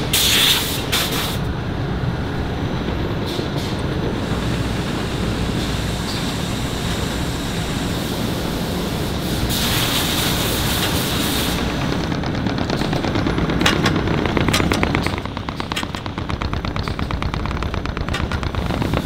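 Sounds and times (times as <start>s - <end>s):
hiss: 0.0s - 1.4s, 3.3s - 11.7s
factory machinery din: 0.0s - 19.0s.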